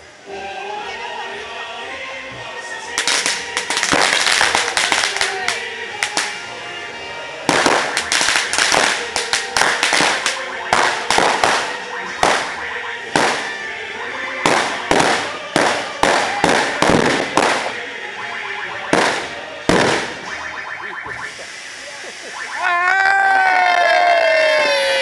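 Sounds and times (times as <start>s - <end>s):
firecrackers crackling and banging: 2.9s - 6.6s, 7.4s - 22.6s.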